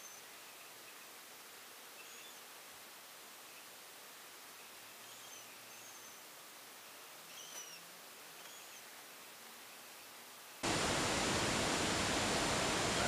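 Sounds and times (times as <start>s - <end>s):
background hiss: 0.0s - 13.0s
static with high whine: 0.0s - 13.0s
faint short chirps: 7.3s - 7.8s.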